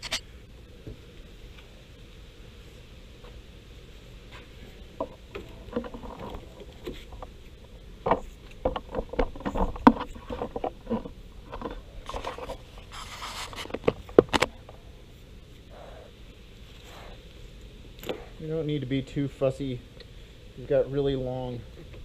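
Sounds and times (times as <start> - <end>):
fabric rustling and scraping: 8.2 - 14.4.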